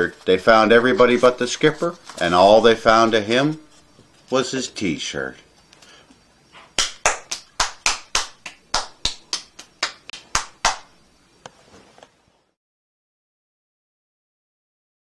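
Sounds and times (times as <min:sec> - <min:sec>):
hands clapping: 0:06.7 - 0:11.0.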